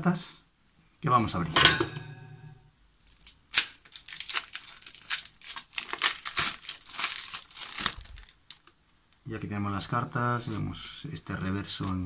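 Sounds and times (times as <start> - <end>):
plastic wrap crinkling and tearing: 3.0 - 8.8
plastic wrap snap: 3.1 - 8.8.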